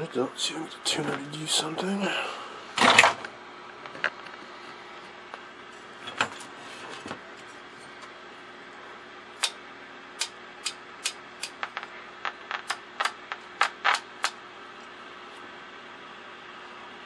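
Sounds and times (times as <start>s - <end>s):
sharp tuner clicks: 10.2s - 14.4s.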